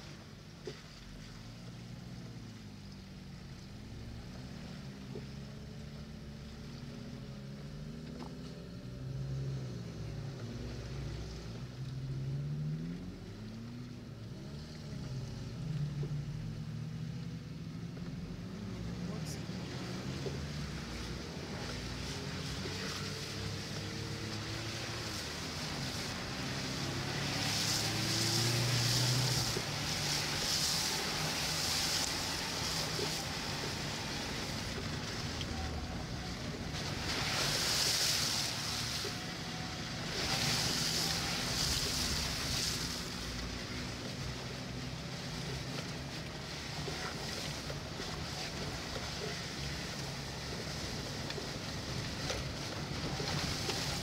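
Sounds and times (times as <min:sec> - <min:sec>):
vehicle engine running: 0:00.0 - 0:54.0
water spray hissing: 0:21.0 - 0:44.2.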